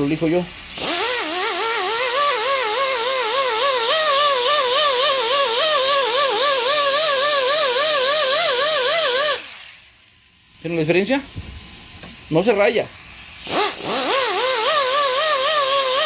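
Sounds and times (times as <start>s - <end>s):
air hiss: 0.0s - 10.1s, 12.5s - 16.0s
die grinder whining: 0.7s - 9.8s, 13.0s - 16.0s.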